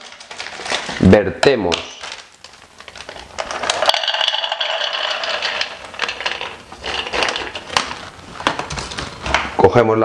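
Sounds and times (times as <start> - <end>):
nuts pouring into a blender: 2.8 - 7.8.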